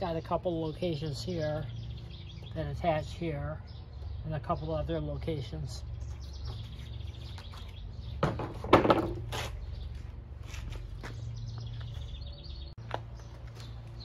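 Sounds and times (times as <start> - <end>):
birds chirping faintly: 0.0 - 14.0
handling noise knocks and rustling: 6.4 - 9.6.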